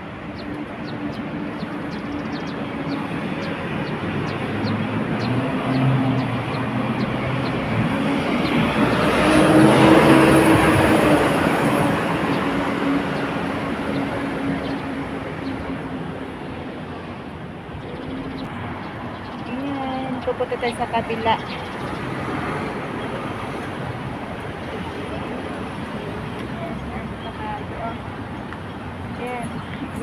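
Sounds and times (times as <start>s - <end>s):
vehicle passing: 3.4s - 15.6s.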